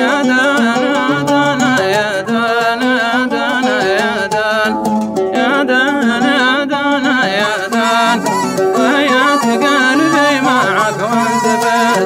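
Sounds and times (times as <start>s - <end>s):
oud plucking: 0.0s - 12.0s
reed pipe melody: 7.3s - 12.0s.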